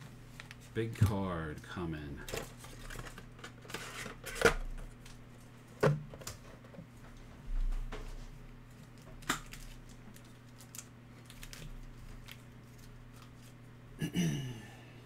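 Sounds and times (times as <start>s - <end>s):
foil packs rustling and clicking: 2.2s - 5.2s, 8.8s - 13.6s
man clearing his throat: 14.0s - 14.9s.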